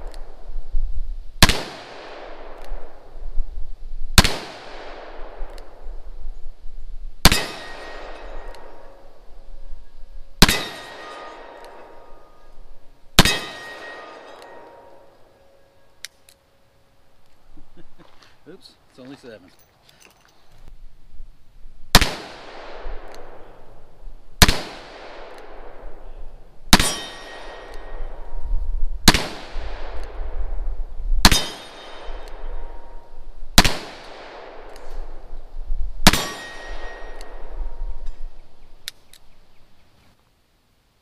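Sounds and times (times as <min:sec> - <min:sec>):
revolver gunshots with echo: 0:01.4 - 0:03.1, 0:04.2 - 0:05.8, 0:07.2 - 0:09.0, 0:10.4 - 0:12.5, 0:13.2 - 0:15.2, 0:21.9 - 0:23.8, 0:24.4 - 0:26.1, 0:26.7 - 0:28.4, 0:29.0 - 0:30.6, 0:31.2 - 0:33.0, 0:33.6 - 0:35.3, 0:36.0 - 0:38.1.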